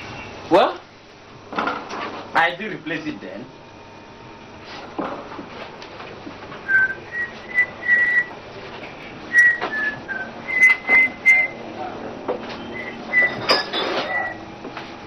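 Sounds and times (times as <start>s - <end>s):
knocks and rustles of objects moved: 1.5s - 2.3s, 4.6s - 7.6s, 12.2s - 15.0s
short whistled notes: 9.3s - 11.6s, 12.6s - 14.4s.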